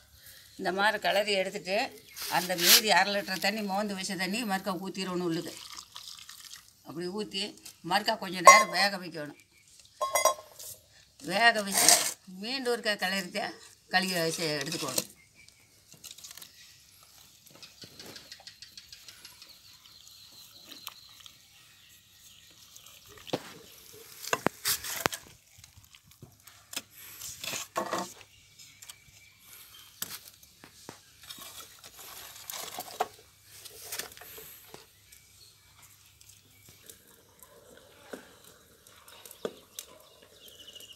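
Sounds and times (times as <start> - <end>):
wood knocking and scraping pot: 8.3 - 9.1, 9.9 - 12.3, 12.9 - 15.3, 23.0 - 26.5, 27.2 - 28.3, 30.0 - 34.9, 36.0 - 40.9.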